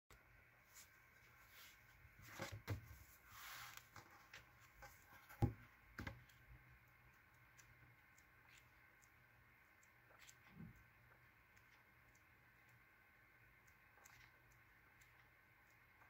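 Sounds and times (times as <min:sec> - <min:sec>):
paper rustling: 0:00.7 - 0:05.5
soft taps and knocks on book: 0:05.2 - 0:06.2.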